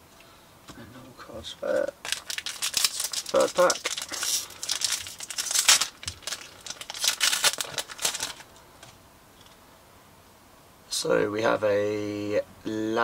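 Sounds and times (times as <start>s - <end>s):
wrapper tearing and rustling: 1.6s - 8.6s.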